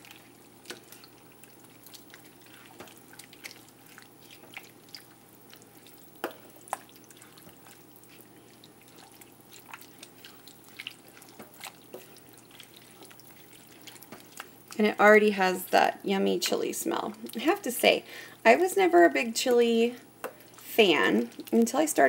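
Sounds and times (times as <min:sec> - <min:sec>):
spatula stirring thick chili: 0:00.0 - 0:15.0, 0:20.1 - 0:22.0.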